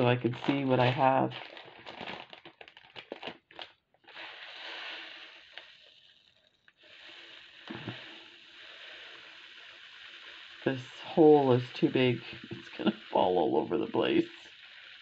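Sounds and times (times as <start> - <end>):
beads pouring into plastic container: 0.0 - 3.5, 4.2 - 15.0
plastic bags crinkling: 0.0 - 3.8.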